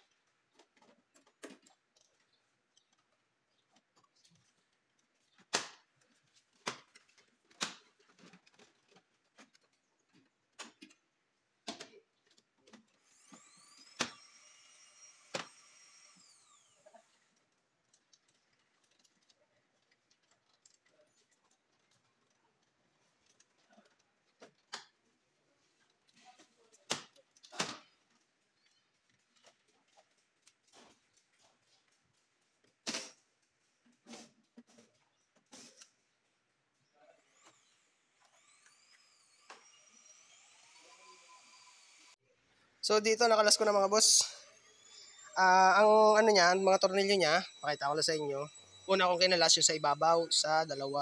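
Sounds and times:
power driver whine: 0:43.4 - 0:51.0.

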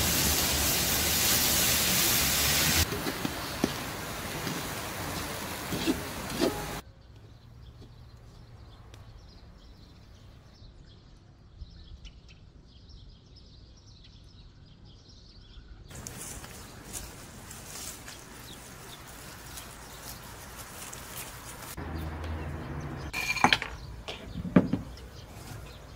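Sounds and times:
loud even hiss: 0:00.0 - 0:06.8
small birds chirping: 0:03.1 - 0:25.9.

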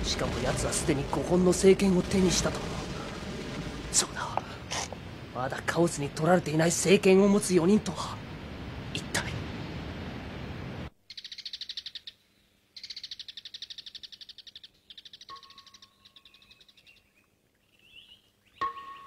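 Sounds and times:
rushing waterfall: 0:00.0 - 0:10.9
songbirds trilling: 0:11.1 - 0:19.0.

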